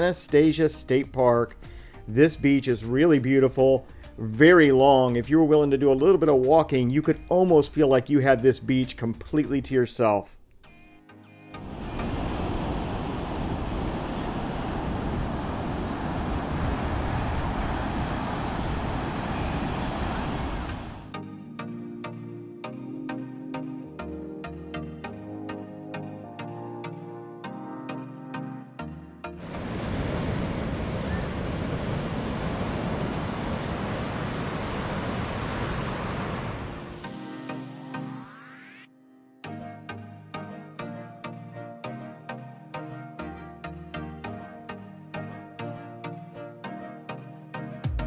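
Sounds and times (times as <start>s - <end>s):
ocean surf breaking: 11.6s - 21.2s, 29.2s - 37.7s
wind buffeting microphone: 11.9s - 21.0s, 29.6s - 36.8s.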